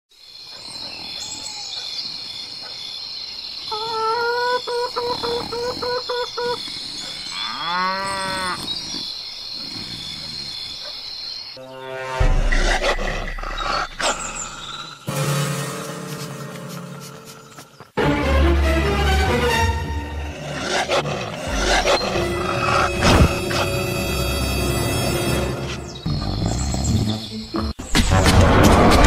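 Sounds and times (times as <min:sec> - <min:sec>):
cow moo: 0:07.3 - 0:08.7.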